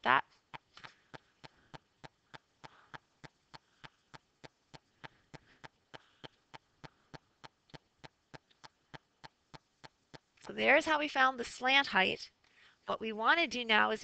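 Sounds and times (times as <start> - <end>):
faint ticking: 0.4 - 10.7.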